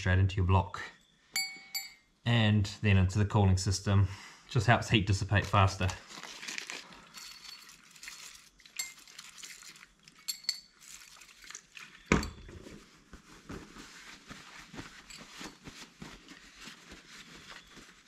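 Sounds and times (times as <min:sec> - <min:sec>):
metal parts clinking on surface: 0:07.0 - 0:11.0.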